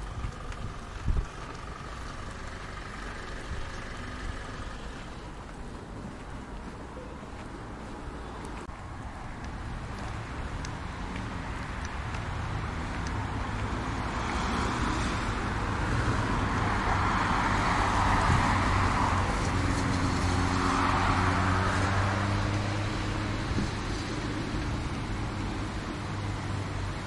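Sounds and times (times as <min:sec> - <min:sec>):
cars passing: 0:00.0 - 0:27.0
low engine hum: 0:00.0 - 0:27.0.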